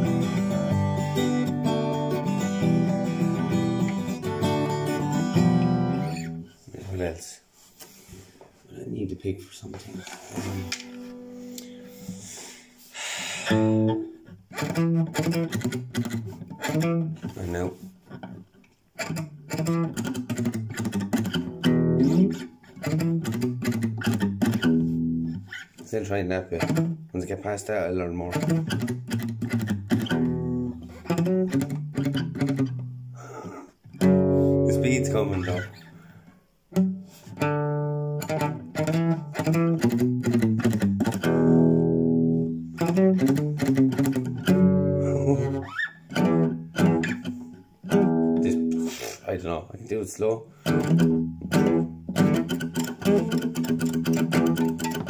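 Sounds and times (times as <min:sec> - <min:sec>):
guitar picked single notes: 0:00.0 - 0:06.5, 0:13.5 - 0:17.3, 0:28.3 - 0:33.2, 0:34.0 - 0:35.8, 0:36.7 - 0:49.0, 0:50.6 - 0:55.0.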